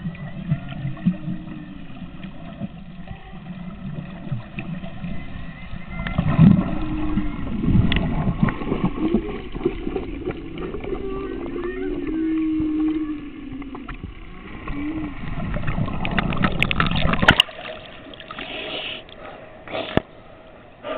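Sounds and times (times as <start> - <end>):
whale song: 0.0 - 16.6
low rumble of water: 0.0 - 20.9
fainter higher whale calls: 10.9 - 15.3.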